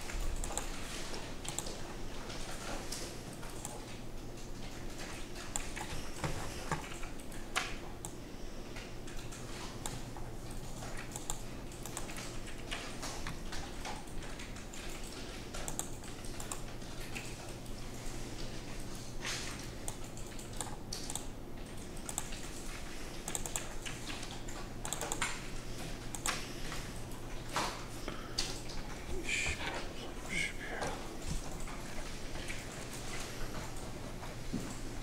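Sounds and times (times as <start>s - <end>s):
keyboard and mouse clicking: 0.0s - 0.8s, 1.4s - 1.8s, 2.9s - 3.9s, 9.1s - 17.7s, 18.9s - 22.6s, 23.2s - 25.5s, 26.1s - 26.4s
steady low hum: 0.0s - 35.0s.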